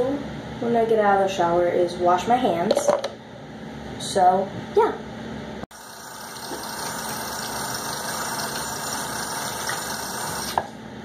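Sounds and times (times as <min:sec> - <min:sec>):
tap water running into sink: 0:05.8 - 0:10.6.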